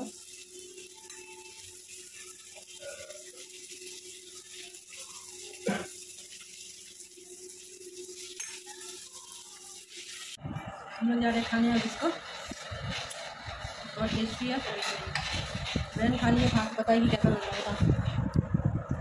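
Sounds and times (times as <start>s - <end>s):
spoon scraping a steel plate: 8.2s - 10.3s.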